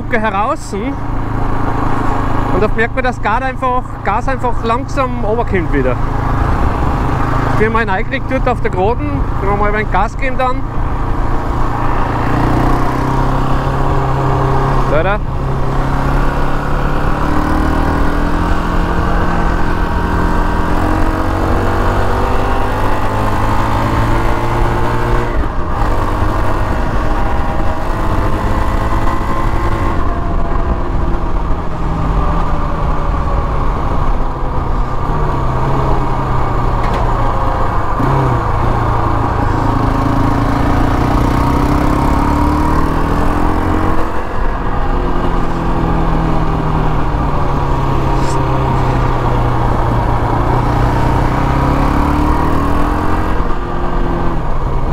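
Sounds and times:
quad engine revving: 35.6s - 44.6s, 45.3s - 53.6s.

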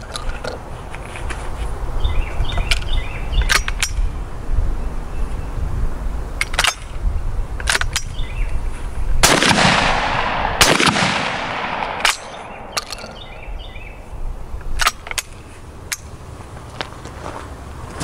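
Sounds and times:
metallic gun action clicks: 2.6s - 4.1s, 11.8s - 13.2s
shotgun shots echoing: 9.2s - 12.8s.

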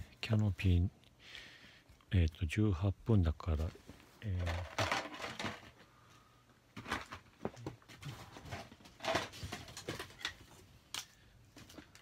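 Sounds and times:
small objects clicking and rustling: 4.3s - 5.8s.

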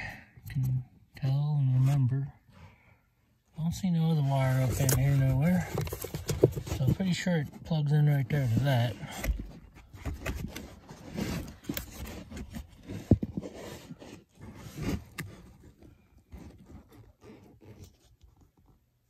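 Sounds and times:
hands rustling and scraping: 3.8s - 18.8s.

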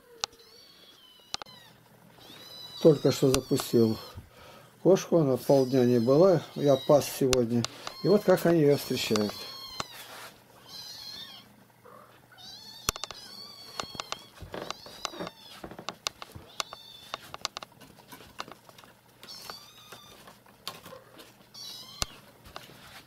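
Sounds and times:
kittens mewing: 0.0s - 4.5s, 5.2s - 17.5s, 19.2s - 22.3s
light clicks and knocks: 9.0s - 9.9s, 12.9s - 20.9s.

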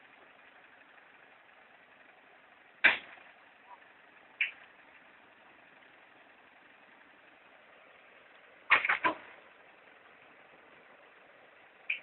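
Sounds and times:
sharp knocks: 2.8s - 3.1s.

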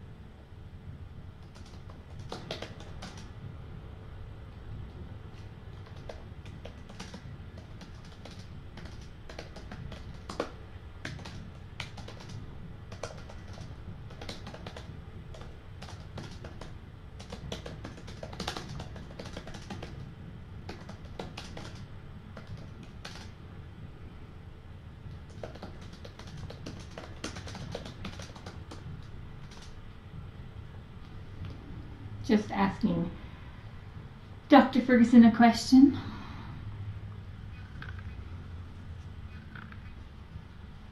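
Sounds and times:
low steady hum: 0.0s - 40.9s
computer keyboard typing: 1.4s - 3.4s, 5.7s - 23.4s, 25.1s - 29.8s.

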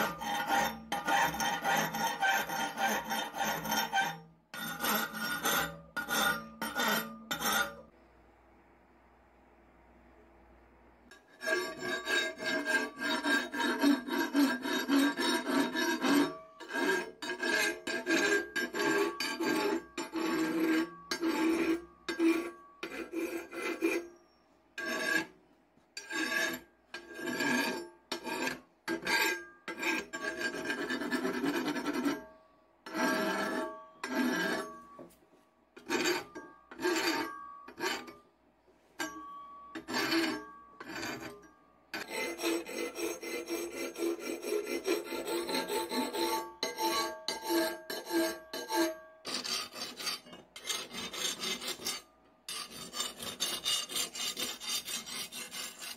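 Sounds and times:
file rasping on steel blade: 0.0s - 7.9s, 11.1s - 25.4s, 26.0s - 35.1s, 35.8s - 38.2s, 39.0s - 55.9s.

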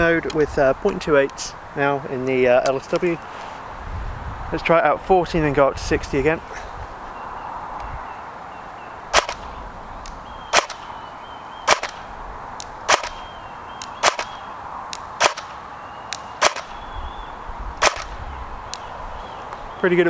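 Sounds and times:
airsoft gun single shots: 9.1s - 9.5s, 10.5s - 10.9s, 11.7s - 12.1s, 12.9s - 13.3s, 14.0s - 14.4s, 15.2s - 16.8s, 17.8s - 18.2s.

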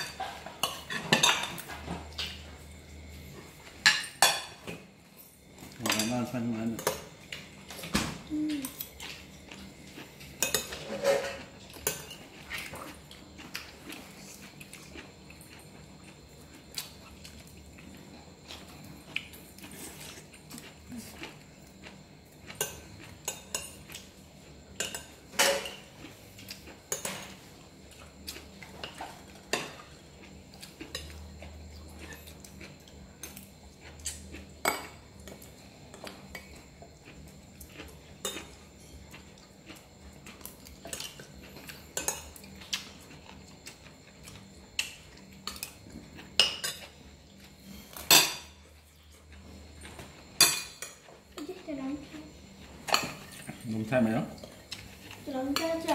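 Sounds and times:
spoons clinking on ceramic plates: 46.4s - 46.9s, 48.0s - 48.6s, 50.4s - 51.1s.

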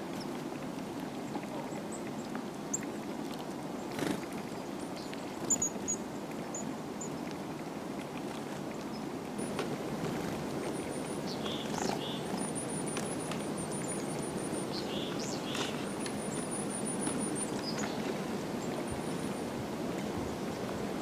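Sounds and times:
songbirds twittering: 3.8s - 7.2s, 10.7s - 19.5s.

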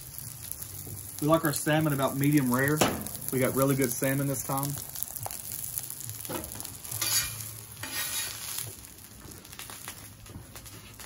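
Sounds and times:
fish sizzling on a griddle: 0.0s - 11.0s
metal spatula scraping steel: 6.4s - 8.6s.

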